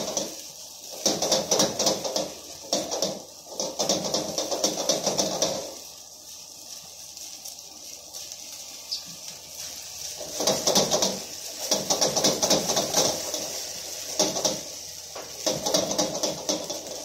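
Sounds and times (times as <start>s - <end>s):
steady high hiss: 0.0s - 17.0s
utensil scraping a wok: 0.0s - 17.0s.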